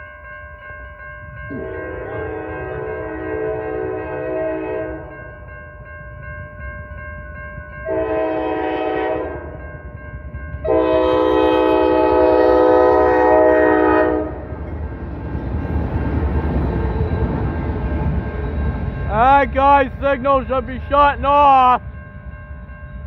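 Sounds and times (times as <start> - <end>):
crossing bell ringing: 0.0 - 23.0
diesel locomotive horn: 1.5 - 5.2, 7.8 - 9.6, 10.6 - 14.7
locomotives rumbling: 10.5 - 21.7.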